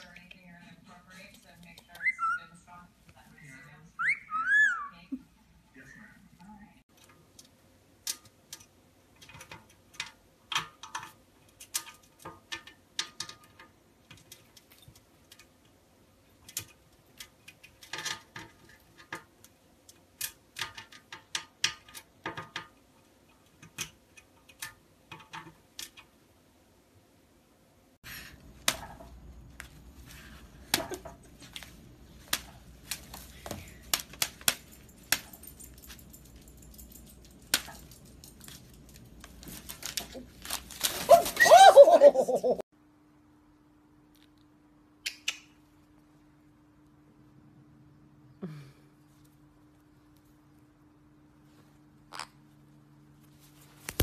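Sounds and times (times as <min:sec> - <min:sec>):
background noise: 0:00.0 - 0:54.0
metal toy chains rattling and clicking: 0:33.7 - 0:39.2.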